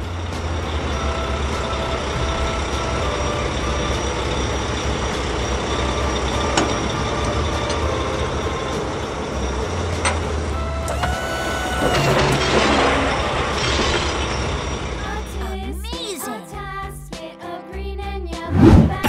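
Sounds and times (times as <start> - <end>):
truck engine rumble: 0.0 - 15.7
rushing noise: 18.5 - 19.0.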